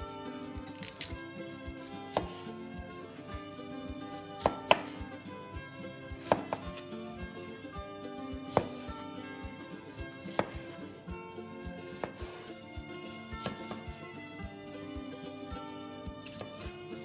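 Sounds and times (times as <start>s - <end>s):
soft background music: 0.0s - 17.0s
knife chopping on cutting board: 0.4s - 2.5s, 4.0s - 5.2s, 6.2s - 6.9s, 8.4s - 9.0s, 9.8s - 10.8s, 11.8s - 14.0s, 16.2s - 16.7s.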